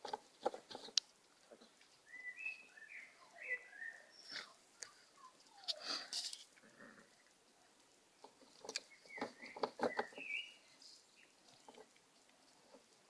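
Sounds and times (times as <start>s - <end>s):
puppies scuffling on dirt: 0.0s - 13.0s
puppy squeaks: 5.2s - 5.9s.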